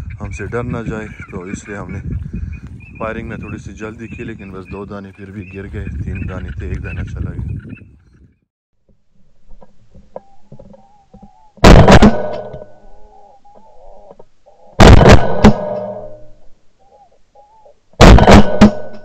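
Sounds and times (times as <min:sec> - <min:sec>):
shotgun shots: 0:11.6 - 0:12.7, 0:14.8 - 0:16.2, 0:18.0 - 0:19.0.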